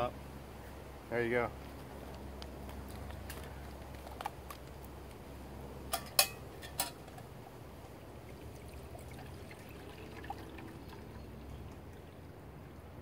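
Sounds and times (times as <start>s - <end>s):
water pouring into metal cup: 8.2s - 12.2s.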